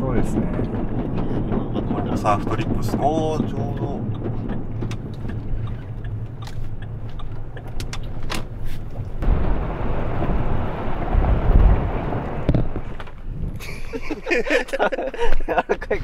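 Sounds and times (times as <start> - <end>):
sharp clicks and knocks: 0.0 - 9.2
rushing noise with heavy rumble: 0.0 - 15.0
car engine and road hum: 0.0 - 16.0.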